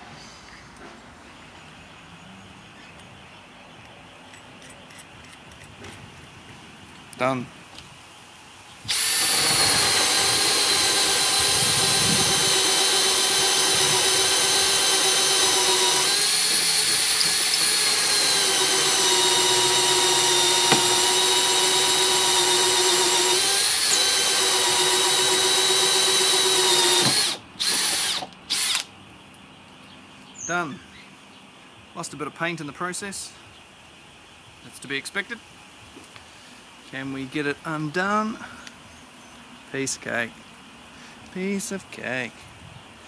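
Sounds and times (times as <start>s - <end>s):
drill motor whining under load: 8.9s - 28.9s.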